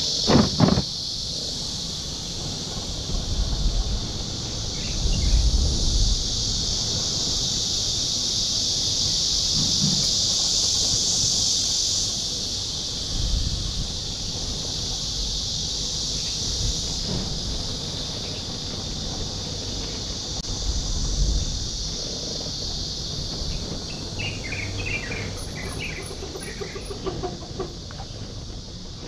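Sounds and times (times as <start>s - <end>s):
insects buzzing: 0.0s - 29.0s
bird chirping: 23.9s - 27.3s.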